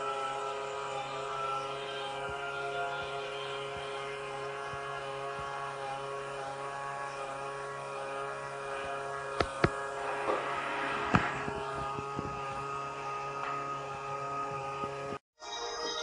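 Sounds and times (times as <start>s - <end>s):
electric motors humming: 0.0s - 15.2s.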